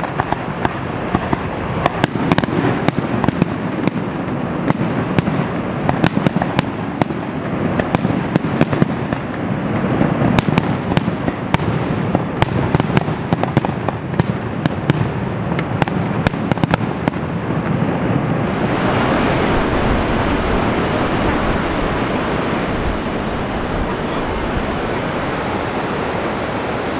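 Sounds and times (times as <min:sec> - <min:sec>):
fireworks bangs and crackling: 0:00.0 - 0:26.9
steady rushing noise: 0:00.0 - 0:26.9.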